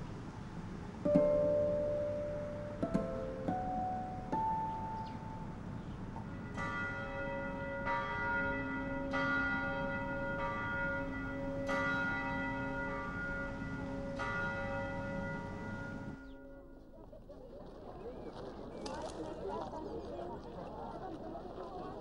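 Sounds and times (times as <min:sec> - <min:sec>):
church bell tolling: 0:01.1 - 0:05.6, 0:06.2 - 0:16.9.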